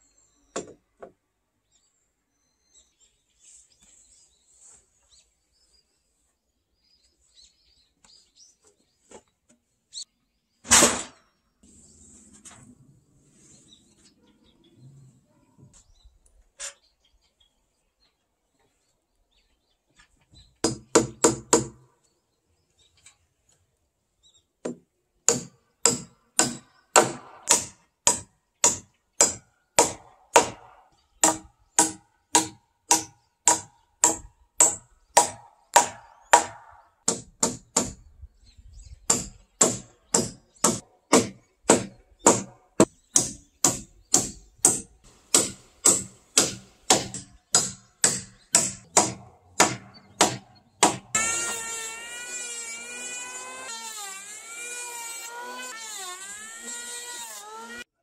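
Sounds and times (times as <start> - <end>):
hand tool striking wooden log: 39.1 - 51.2.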